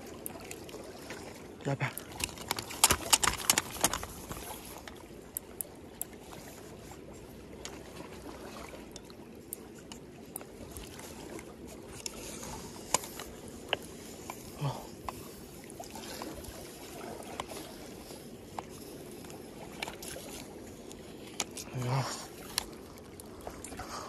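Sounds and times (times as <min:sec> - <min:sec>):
sea water lapping on concrete: 0:00.0 - 0:24.0
light ticks: 0:04.8 - 0:06.2.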